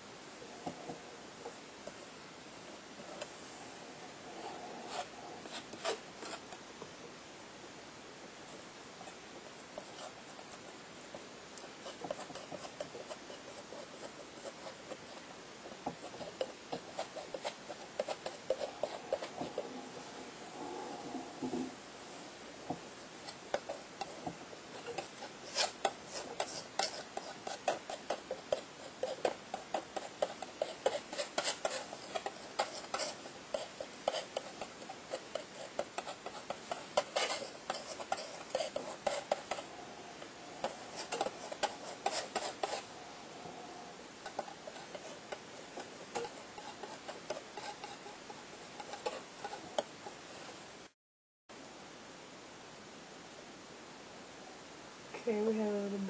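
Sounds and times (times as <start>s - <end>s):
palette knife scraping paint: 4.2s - 6.6s, 9.8s - 10.8s, 11.6s - 20.3s, 23.2s - 50.6s.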